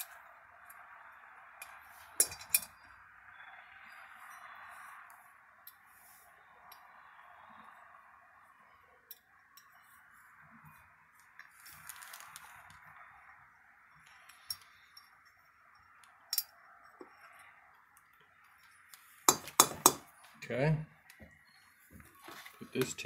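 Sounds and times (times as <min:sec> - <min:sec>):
small metal parts clicking: 0:01.6 - 0:02.8, 0:14.0 - 0:17.4.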